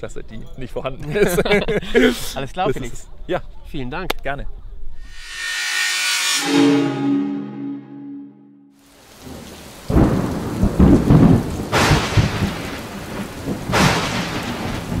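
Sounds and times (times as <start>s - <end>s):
hissing rain: 8.8s - 15.0s
thunder rumbling: 9.0s - 15.0s
loud thunder crashes: 9.2s - 15.0s.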